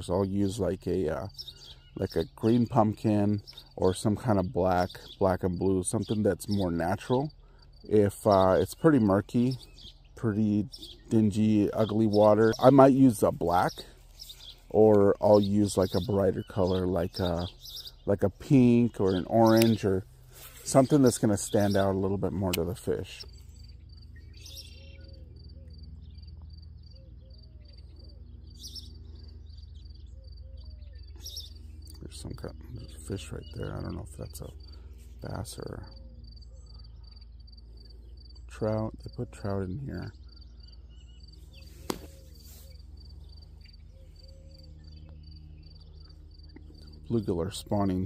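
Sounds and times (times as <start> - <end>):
low background hum: 0.0 - 48.0
low steady rumble: 5.2 - 48.0
insect chirping: 6.6 - 10.1, 22.8 - 47.1
sharp click: 19.5 - 19.8, 41.8 - 42.1.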